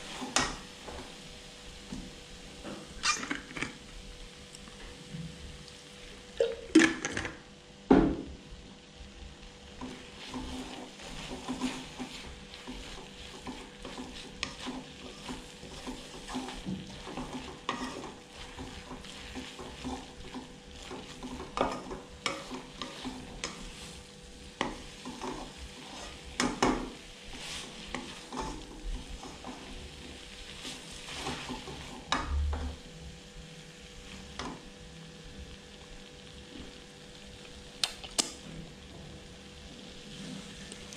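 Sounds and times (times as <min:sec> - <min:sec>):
utensil stirring and scraping noodles: 0:00.0 - 0:01.5, 0:09.6 - 0:32.4
light sizzle: 0:00.0 - 0:40.9.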